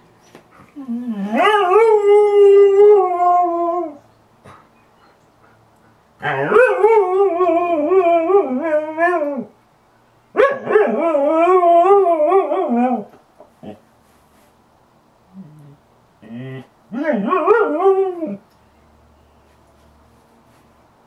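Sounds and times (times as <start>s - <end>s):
dog howling: 0.8s - 4.0s.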